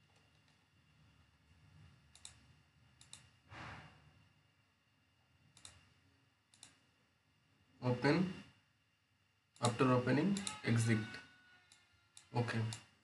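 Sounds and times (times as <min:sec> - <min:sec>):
faint room hum: 0:00.0 - 0:13.0
breath-like rush of noise: 0:03.5 - 0:04.2.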